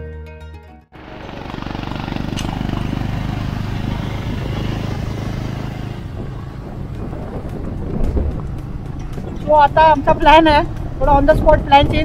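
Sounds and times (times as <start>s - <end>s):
motorcycle engine running: 1.0s - 12.0s.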